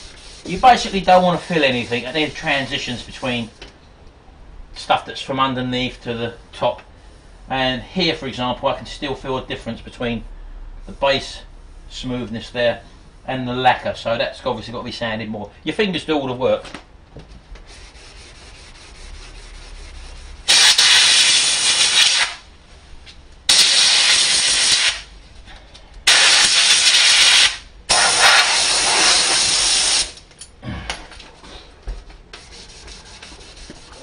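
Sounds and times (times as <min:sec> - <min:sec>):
hand sanding rubbing: 0:00.0 - 0:03.6, 0:17.6 - 0:22.4, 0:32.3 - 0:34.0
air blow gun hissing: 0:20.5 - 0:22.4, 0:23.5 - 0:25.1, 0:26.1 - 0:30.2.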